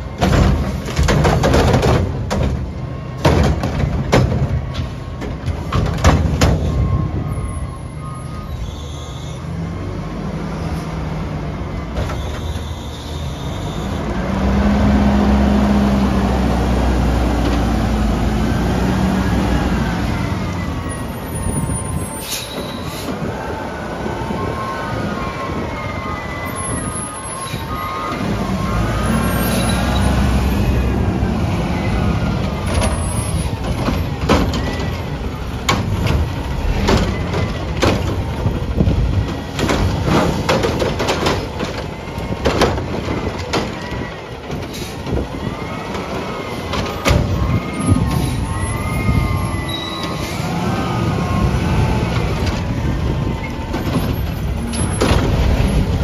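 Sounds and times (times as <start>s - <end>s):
diesel engine revving: 13.4s - 22.1s, 27.7s - 41.2s, 44.7s - 56.0s.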